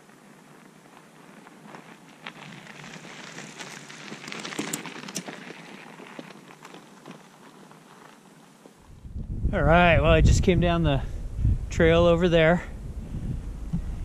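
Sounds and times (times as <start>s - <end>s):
bike tyres crunching on gravel: 0.0s - 9.1s.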